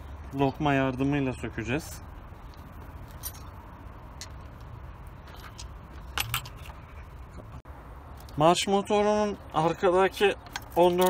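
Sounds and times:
steady low hum: 0:00.0 - 0:10.8.

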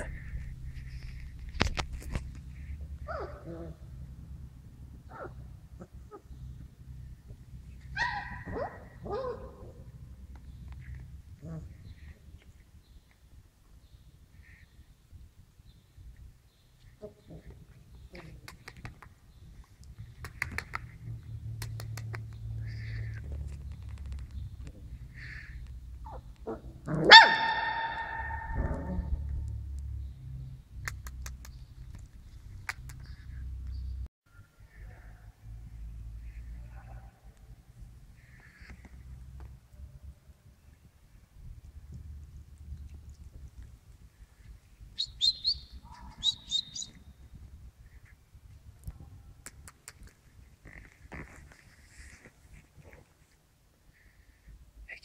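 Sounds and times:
puppy bark: 0:03.0 - 0:03.8, 0:05.1 - 0:05.4, 0:07.9 - 0:09.9, 0:26.0 - 0:29.1, 0:45.8 - 0:46.5.

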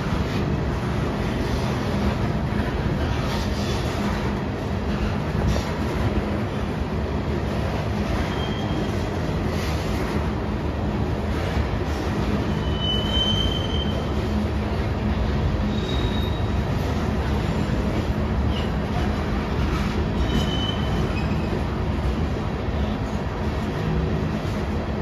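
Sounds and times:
rail cars rumbling past: 0:00.0 - 0:25.0
wheel squeals: 0:08.1 - 0:09.3, 0:12.4 - 0:14.2, 0:15.6 - 0:17.0, 0:20.2 - 0:21.7.

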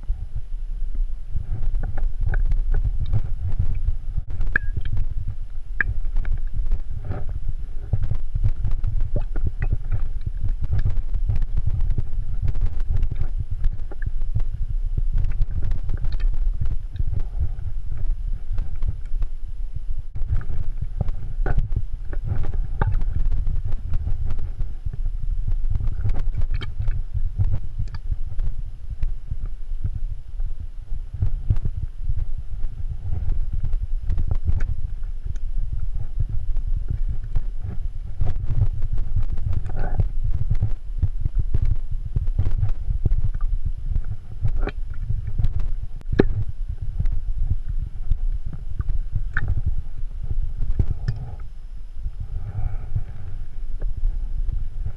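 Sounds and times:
low uneven rumble: 0:00.0 - 0:54.9
sharp clicks and scrapes: 0:05.8 - 0:14.5, 0:25.6 - 0:29.5, 0:41.5 - 0:47.2, 0:48.1 - 0:49.7.

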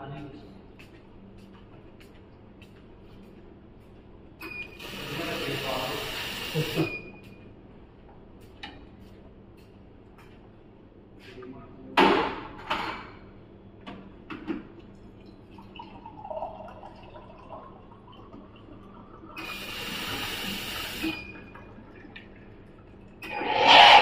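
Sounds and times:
coffee machine hiss dispensing: 0:04.8 - 0:06.9, 0:19.4 - 0:21.2
coffee machine running: 0:04.8 - 0:06.9, 0:19.3 - 0:21.2.

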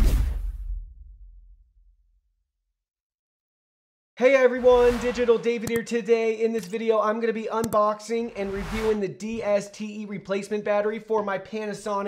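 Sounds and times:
deep boom hit with crash: 0:00.0 - 0:01.7.

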